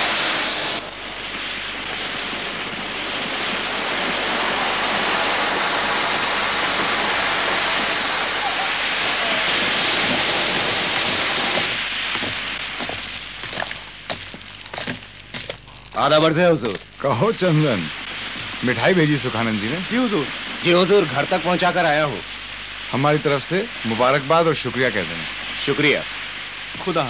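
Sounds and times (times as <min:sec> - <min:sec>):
firework fountain hissing: 0:00.0 - 0:27.0.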